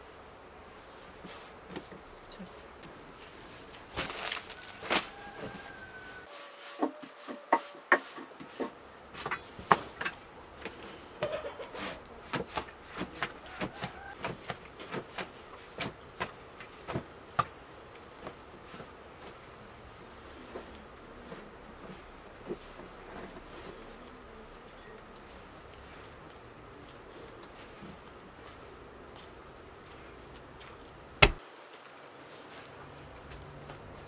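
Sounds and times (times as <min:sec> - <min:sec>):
dough slaps and pats: 0:12.3 - 0:17.6, 0:31.2 - 0:31.4.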